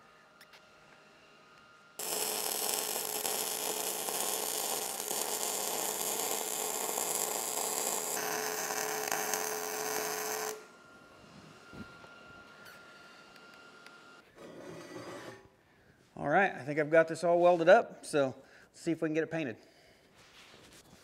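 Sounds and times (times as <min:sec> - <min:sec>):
welder arc crackling: 0:02.0 - 0:10.7.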